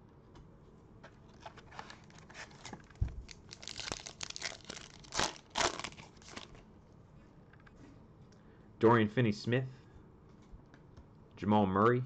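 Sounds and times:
foil wrapper crinkling and tearing: 1.4s - 6.6s.

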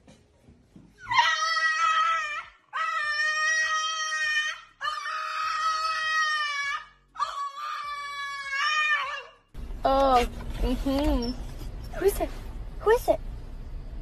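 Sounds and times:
dog howling: 1.1s - 9.4s.

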